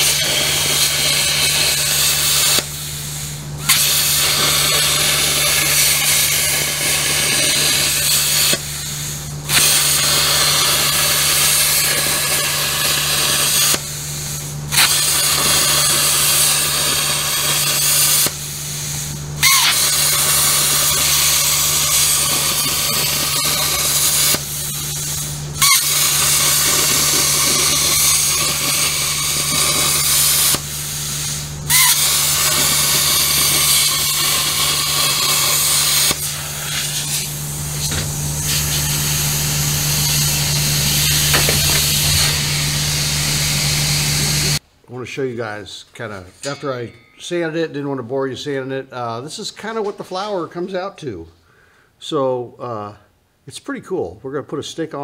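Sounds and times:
plasma cutter hissing: 0:00.0 - 0:44.6
low hum: 0:20.2 - 0:44.6.

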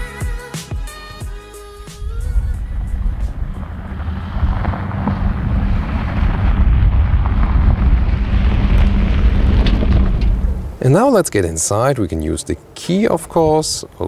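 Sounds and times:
low vehicle rumble: 0:01.8 - 0:11.2
wind noise: 0:02.0 - 0:11.2.

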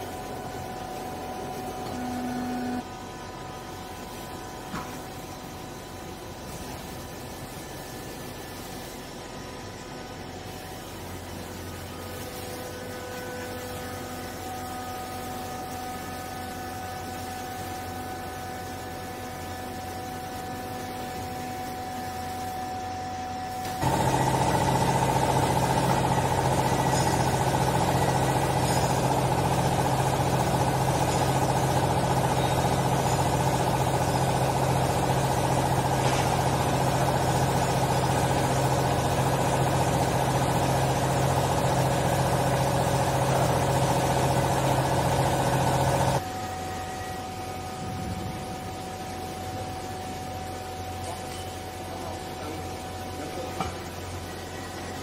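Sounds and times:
hydraulic pump motor humming: 0:00.0 - 0:06.4, 0:12.9 - 0:46.8.

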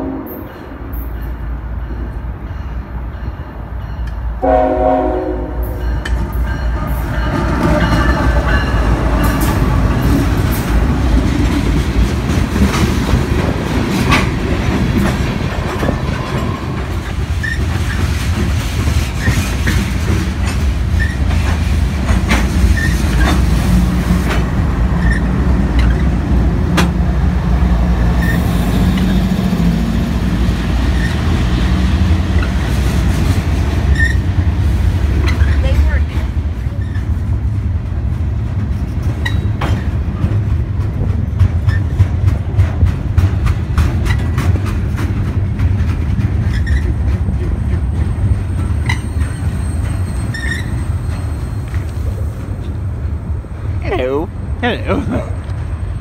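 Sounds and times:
train horn: 0:00.0 - 0:00.8, 0:04.4 - 0:10.4
diesel locomotive engine drone: 0:00.0 - 0:56.0
train wheels clacking on rails: 0:05.7 - 0:52.8.

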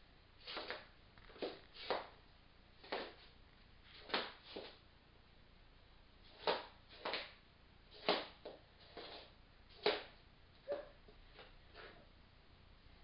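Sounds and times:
slippers scuffing on wooden floor: 0:00.4 - 0:02.2, 0:02.8 - 0:03.3.

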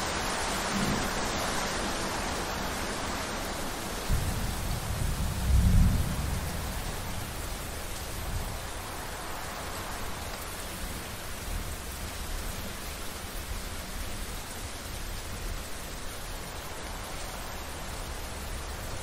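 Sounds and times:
rain hissing: 0:00.0 - 0:19.0
thunder rumbling: 0:04.0 - 0:07.4.

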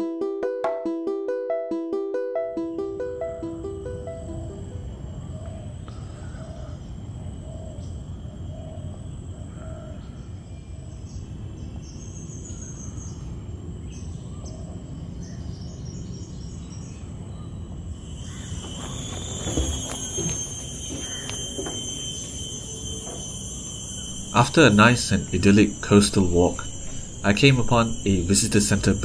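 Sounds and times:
high insect drone: 0:02.7 - 0:29.0
higher bird chirps: 0:15.3 - 0:29.0.

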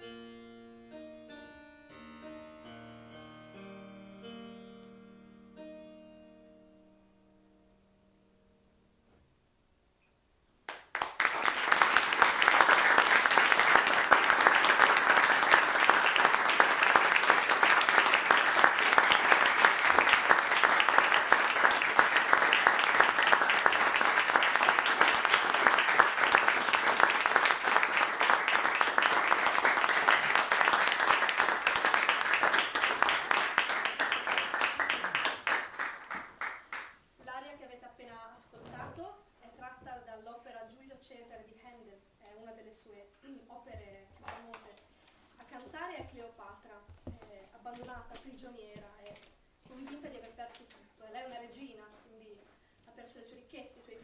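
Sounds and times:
harpsichord notes: 0:00.0 - 0:08.2
audience applause: 0:10.7 - 0:36.9.

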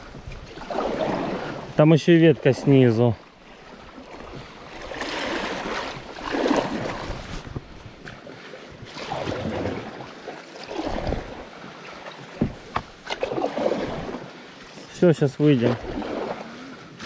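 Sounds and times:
paddle strokes swishing in water: 0:00.0 - 0:17.0.

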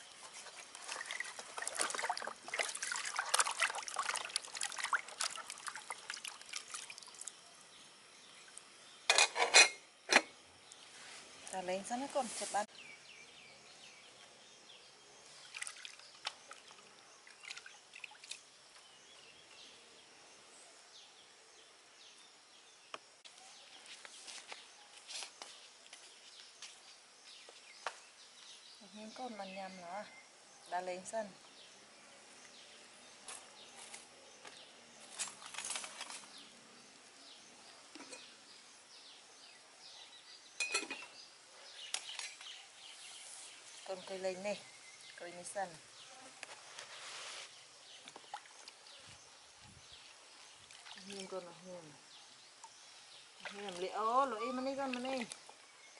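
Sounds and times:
faint birds chirping: 0:00.0 - 0:55.9
water dripping and splashing into basin: 0:00.4 - 0:07.6, 0:15.4 - 0:18.8, 0:48.0 - 0:49.0, 0:49.9 - 0:51.9, 0:52.5 - 0:55.8
metal spoon clinking on a pot: 0:40.6 - 0:41.1.

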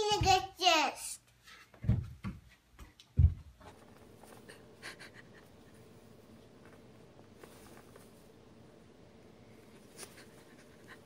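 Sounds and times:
hooves thudding on wooden stairs: 0:01.8 - 0:03.7.

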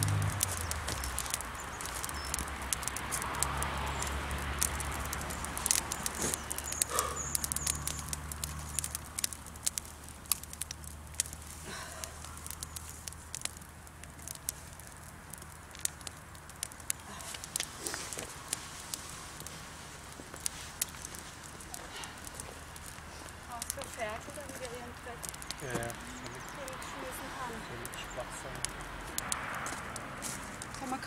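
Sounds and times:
campfire crackling and popping: 0:00.0 - 0:31.0.

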